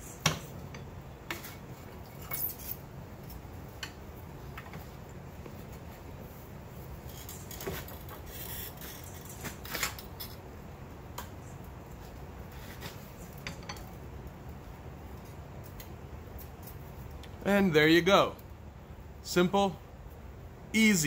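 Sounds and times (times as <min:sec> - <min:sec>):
steady low hum: 0:00.0 - 0:21.0
metal tongs clinking and scraping: 0:02.0 - 0:02.9.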